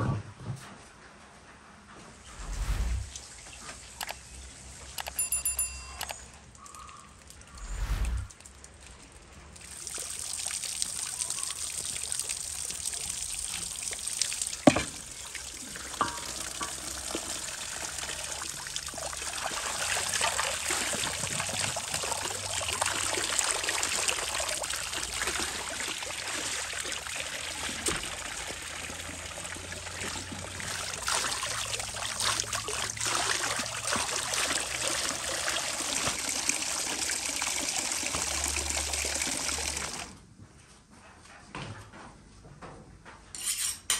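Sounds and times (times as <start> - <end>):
water poured into basin: 6.6 - 40.1.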